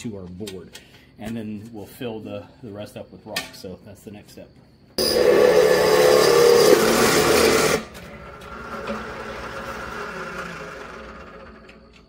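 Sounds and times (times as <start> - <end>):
drill press cutting sheet metal: 5.0 - 12.0
drill press whirring down: 5.0 - 12.0.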